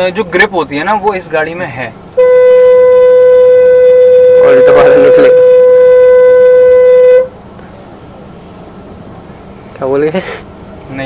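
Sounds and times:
loud steady single-pitched tone: 2.2s - 7.4s.

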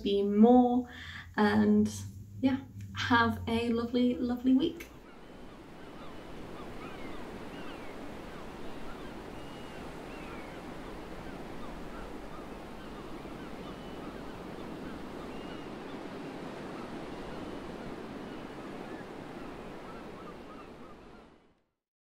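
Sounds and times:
wind: 0.0s - 21.6s
small waves on rocky shore: 4.9s - 21.4s.

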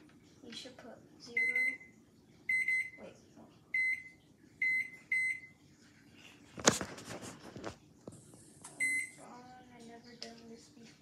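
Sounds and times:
microwave keypad beeps: 1.3s - 1.9s, 2.5s - 3.0s, 3.7s - 5.6s, 8.8s - 9.2s
rustling noise: 5.8s - 8.8s.

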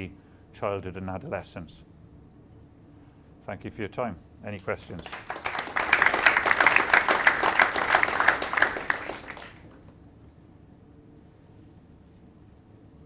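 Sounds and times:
audience applauding: 5.0s - 9.9s.

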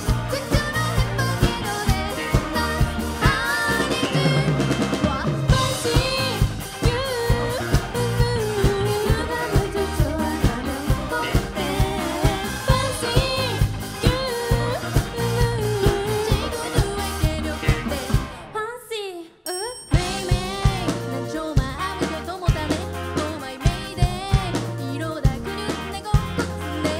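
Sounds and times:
drum kit beat: 0.0s - 18.4s, 19.9s - 26.9s
live pop-rock band playing: 0.0s - 18.6s, 19.5s - 26.9s
lead singer singing: 0.0s - 18.8s.

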